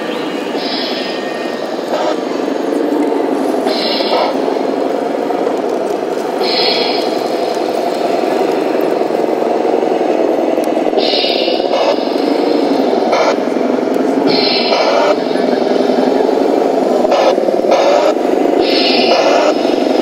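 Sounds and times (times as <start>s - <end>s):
toy truck motor running: 6.4s - 9.0s, 11.0s - 20.0s.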